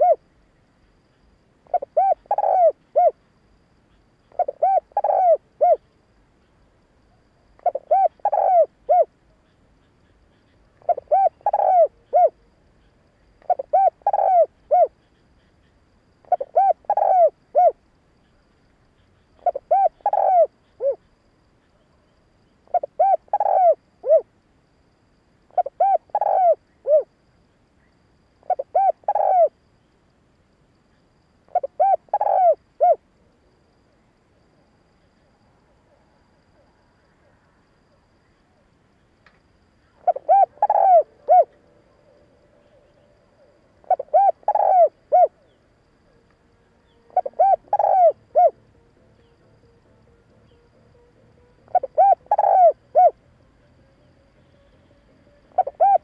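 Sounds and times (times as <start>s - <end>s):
dove cooing: 0.0s - 0.2s, 1.7s - 3.2s, 4.3s - 5.8s, 7.6s - 9.1s, 10.8s - 12.4s, 13.4s - 15.0s, 16.2s - 17.8s, 19.3s - 21.1s, 22.6s - 24.3s, 25.5s - 27.1s, 28.4s - 29.6s, 31.5s - 33.0s, 39.9s - 46.2s, 46.8s - 53.2s, 55.3s - 56.0s.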